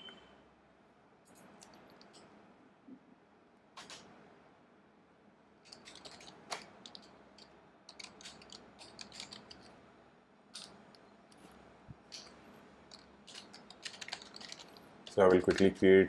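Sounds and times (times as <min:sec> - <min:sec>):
keyboard typing: 0:05.6 - 0:09.8, 0:10.5 - 0:15.9.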